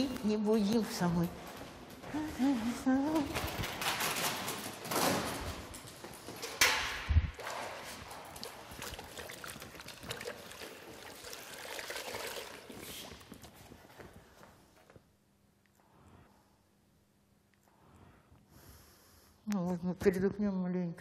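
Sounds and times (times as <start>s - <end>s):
water sloshing in bucket: 7.4s - 13.3s.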